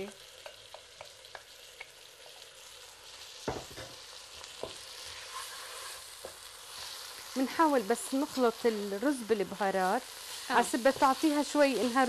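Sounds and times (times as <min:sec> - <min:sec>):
wooden spoon tapping pot: 0:00.0 - 0:02.0
rice sizzling in hot oil: 0:00.0 - 0:12.0.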